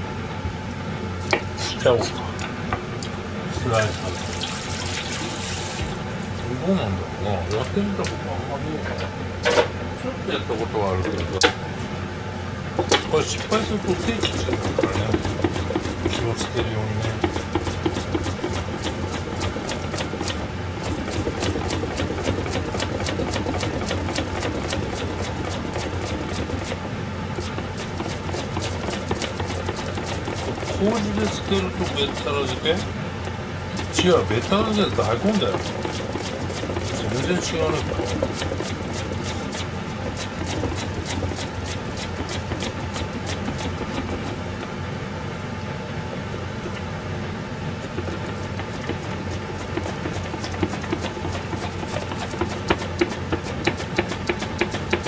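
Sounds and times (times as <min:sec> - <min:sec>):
steady low hum: 0:00.0 - 0:55.0
mandoline slicer rasping: 0:12.8 - 0:33.0, 0:33.7 - 0:44.6, 0:47.6 - 0:55.0.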